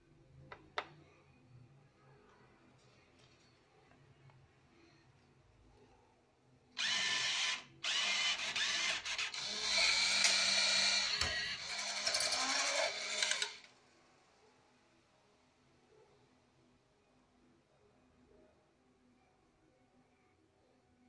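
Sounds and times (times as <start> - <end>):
banknote acceptor motor running: 9.4 - 13.6.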